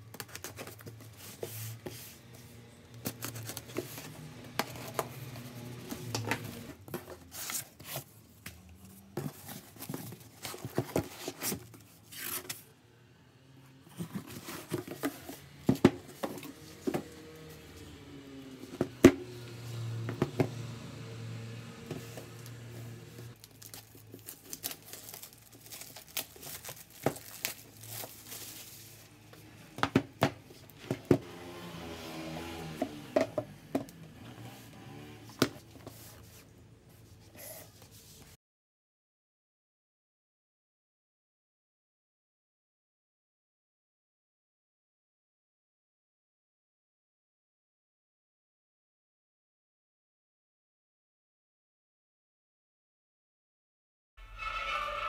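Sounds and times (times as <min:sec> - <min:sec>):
cardboard and packing rustling: 0:00.0 - 0:12.7, 0:13.9 - 0:17.9, 0:21.8 - 0:31.3, 0:35.2 - 0:38.4.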